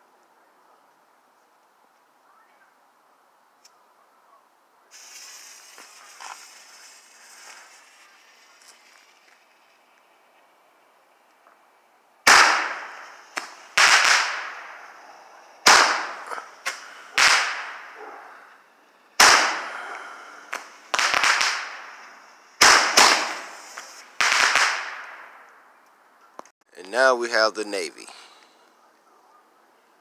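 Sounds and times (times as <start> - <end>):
faint firework pops: 4.9 - 10.0, 12.3 - 14.8, 15.6 - 18.0, 20.5 - 25.6
roman candle bangs: 12.3 - 18.0, 19.2 - 22.0, 22.6 - 25.2.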